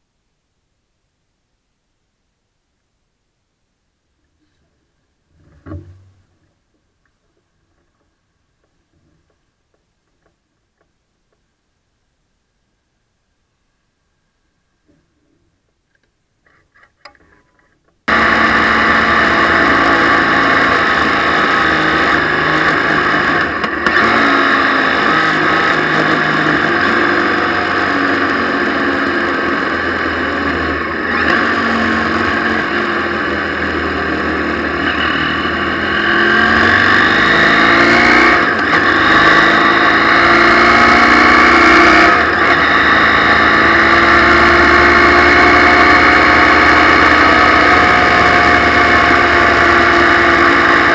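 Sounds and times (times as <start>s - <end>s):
motorcycle engine accelerating: 18.1s - 50.9s.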